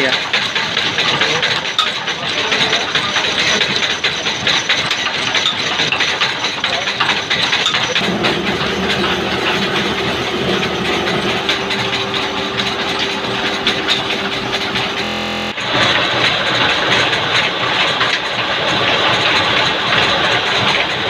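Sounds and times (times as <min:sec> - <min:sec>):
milling machinery rattling: 0:00.0 - 0:21.0
steady hum: 0:08.0 - 0:15.8.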